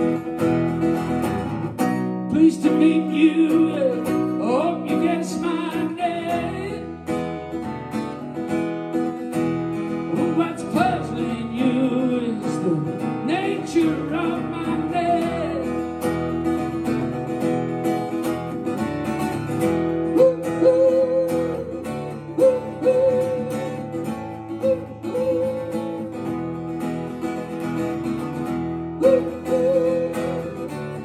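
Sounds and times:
acoustic guitar strumming: 0:00.0 - 0:31.0
man singing: 0:02.2 - 0:07.2, 0:10.1 - 0:16.2, 0:20.2 - 0:23.9, 0:28.9 - 0:31.0.

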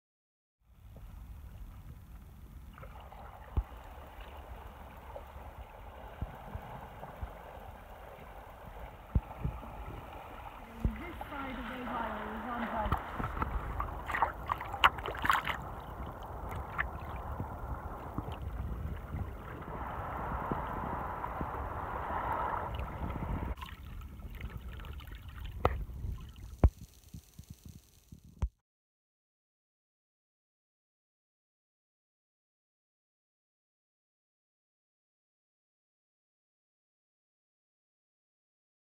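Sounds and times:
low rumble: 0:00.8 - 0:26.8
water gurgling around kayak: 0:00.8 - 0:28.5
choppy sea splashing: 0:01.4 - 0:27.2
wind on microphone: 0:06.0 - 0:28.5.

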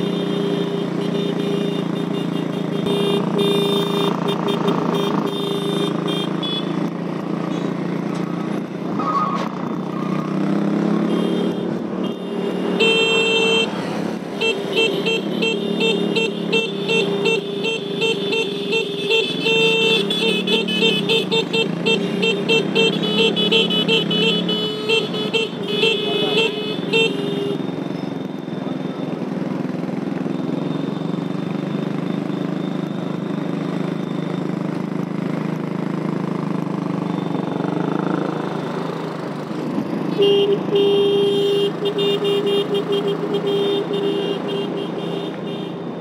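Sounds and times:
vehicle horn honking: 0:00.0 - 0:06.8, 0:14.4 - 0:27.6, 0:40.1 - 0:45.8
motorcycle and car traffic: 0:00.0 - 0:46.0.

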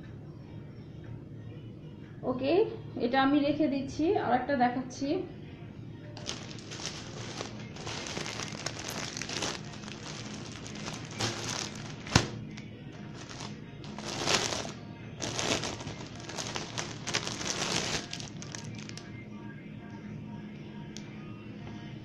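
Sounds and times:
rustling of garments: 0:06.2 - 0:19.0.

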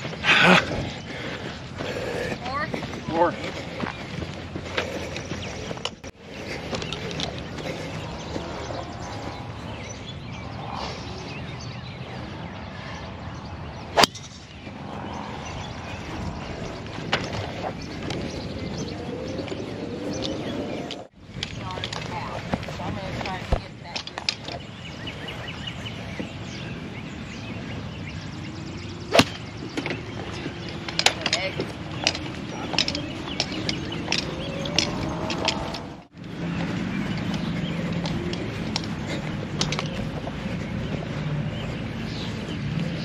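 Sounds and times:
outdoor background noise: 0:00.0 - 0:43.0
golf club striking ball: 0:14.0 - 0:14.4, 0:29.1 - 0:29.4.

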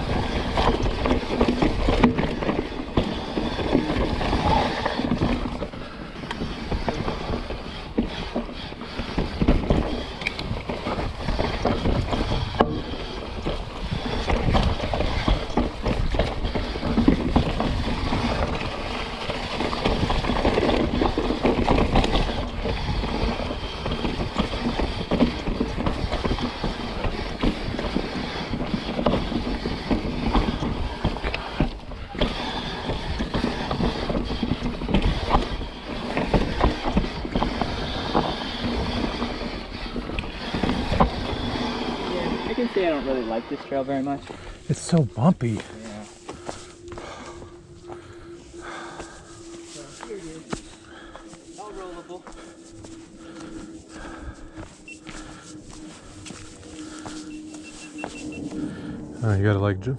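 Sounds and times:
bike rattling and knocking: 0:00.0 - 0:44.6
bike tyres rolling over dirt: 0:00.0 - 0:59.5.

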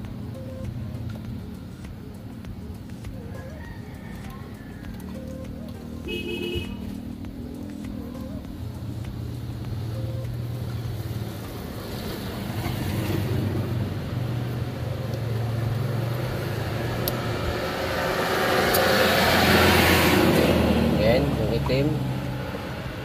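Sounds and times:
low engine hum: 0:00.0 - 0:23.0
vehicle passing by: 0:06.5 - 0:23.0.

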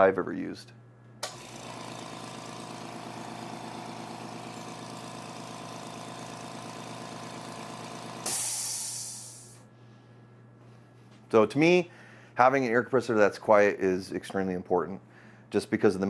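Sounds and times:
compressor switch click: 0:01.2 - 0:01.4
air compressor humming: 0:01.2 - 0:12.6
hiss of released air: 0:08.2 - 0:09.6.

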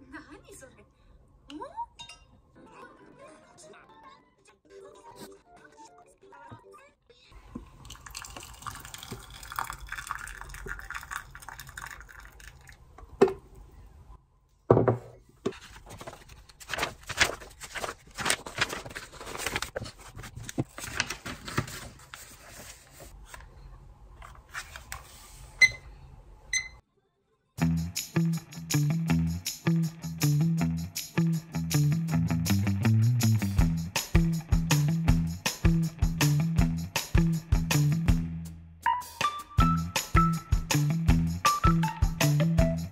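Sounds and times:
hot water poured into mug: 0:07.5 - 0:13.0
paper pages rustling: 0:15.4 - 0:23.6, 0:24.2 - 0:25.5.

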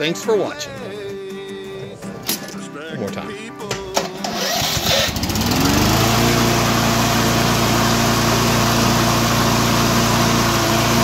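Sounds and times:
lawn mower engine running: 0:03.8 - 0:11.0
electric starter: 0:03.9 - 0:11.0.

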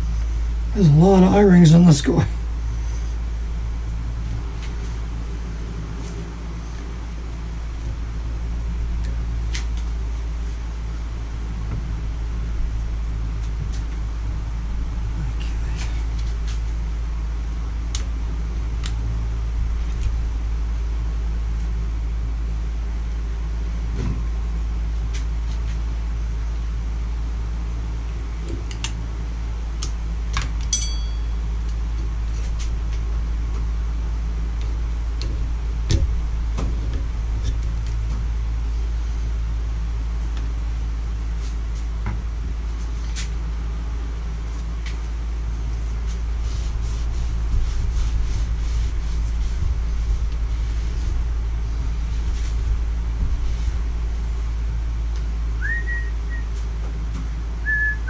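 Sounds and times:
steady low rumble: 0:00.0 - 0:58.0
short metallic ping: 0:30.7 - 0:31.5.

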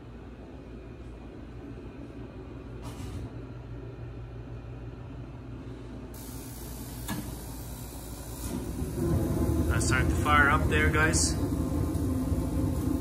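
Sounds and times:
heater low hum: 0:00.0 - 0:13.0
gas hiss: 0:06.1 - 0:13.0.

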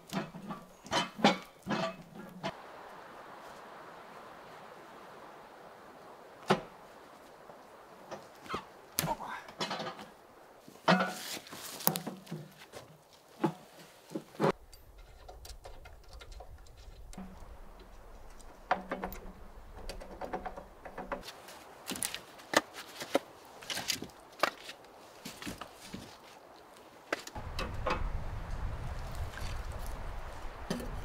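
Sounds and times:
rustling leaf litter: 0:10.6 - 0:14.3, 0:21.2 - 0:31.0.

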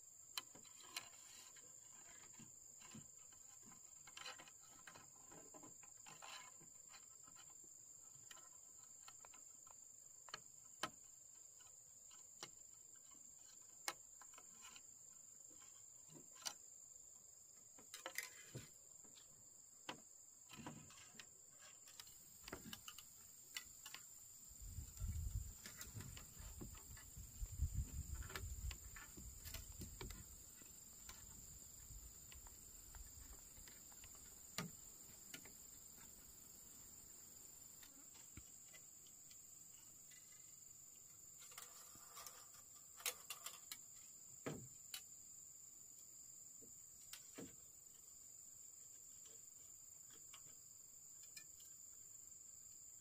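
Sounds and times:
insect chirring: 0:00.0 - 0:53.0
soft knocks and thuds: 0:24.7 - 0:36.2, 0:44.4 - 0:44.8.

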